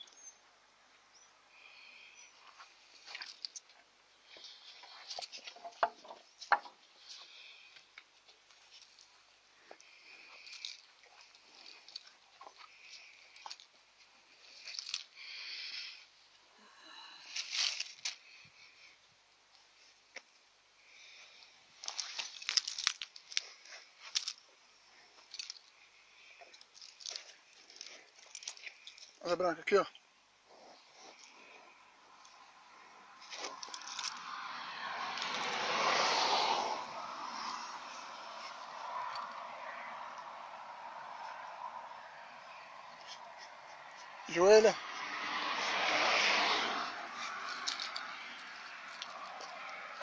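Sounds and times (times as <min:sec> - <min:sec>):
bull chewing bananas: 0:45.1 - 0:50.0.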